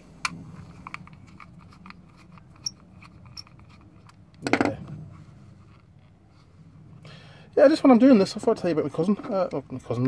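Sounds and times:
screwdriver turning a tiny screw: 0.9 - 4.2.

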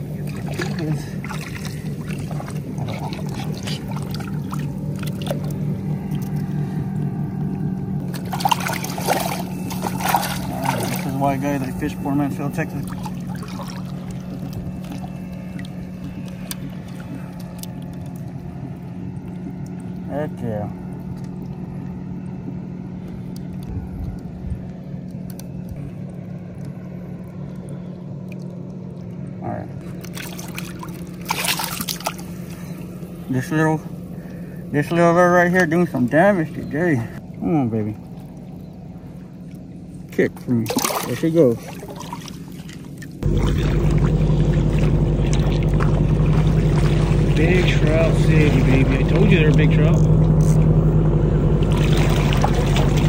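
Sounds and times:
water trickling and sloshing: 0.0 - 50.8, 51.5 - 53.0
distant motorboat engine drone: 0.0 - 53.0
steady low hum: 0.0 - 53.0
fish splashing at surface: 8.1 - 11.2, 29.8 - 32.6, 40.6 - 47.6, 51.6 - 53.0
wind rumbling on microphone: 23.6 - 25.0.

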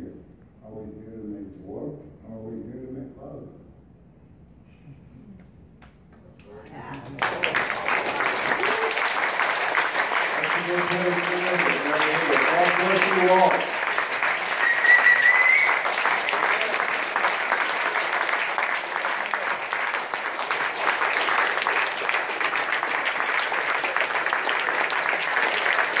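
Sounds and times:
audience clapping: 6.5 - 26.0
whistle from crowd: 14.5 - 15.9.

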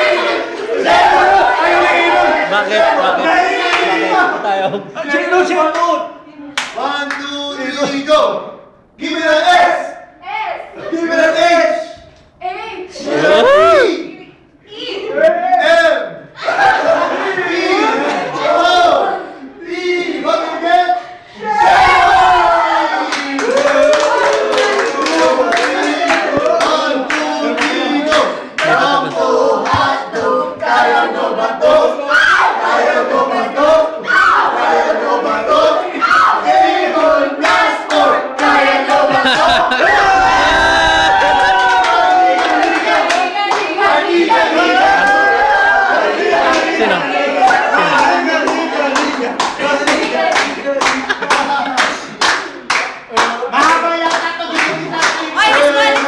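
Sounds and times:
group singing without instruments: 0.0 - 5.6, 15.8 - 22.7, 23.3 - 56.0
voices: 0.0 - 56.0
hand claps: 6.6 - 7.2, 23.1 - 28.8, 47.5 - 56.0.

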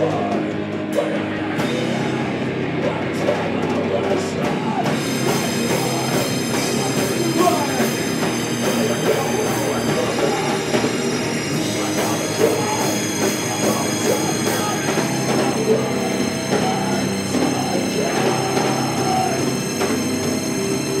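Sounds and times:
drums: 0.0 - 21.0
electric guitars: 0.0 - 21.0
cymbals crashing: 5.0 - 21.0.

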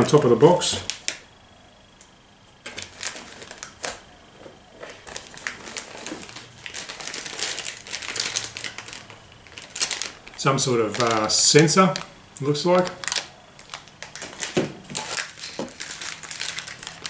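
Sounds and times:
plastic bags crinkling: 2.7 - 4.0, 4.7 - 17.0.

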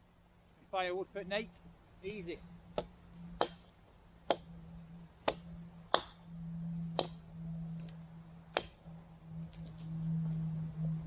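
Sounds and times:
axe chopping branches: 2.8 - 4.5, 5.2 - 6.2, 6.9 - 7.3, 8.5 - 8.9.

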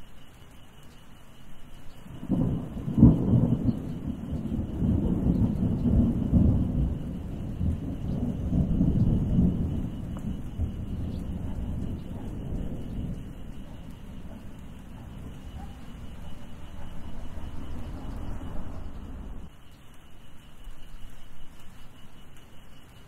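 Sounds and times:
thunder rumbling and cracking: 2.0 - 19.6.

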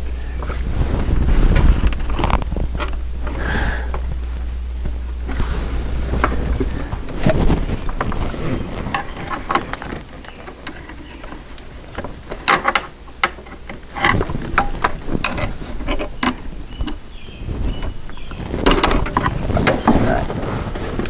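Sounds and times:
low hum: 0.0 - 21.0
small clicks and knocks: 6.1 - 17.0, 17.8 - 20.0.

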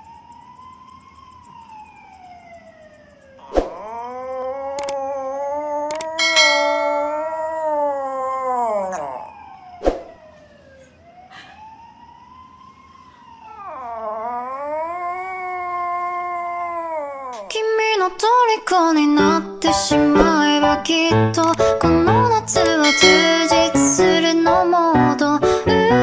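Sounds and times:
small dog howling: 3.4 - 9.7, 13.5 - 17.8
sharp clicks: 4.8 - 5.0, 5.9 - 6.2, 21.4 - 21.8.

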